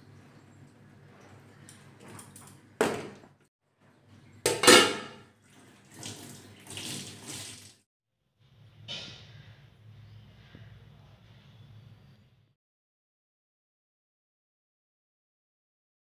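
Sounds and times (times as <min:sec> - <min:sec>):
tap water running: 0:04.2 - 0:07.8.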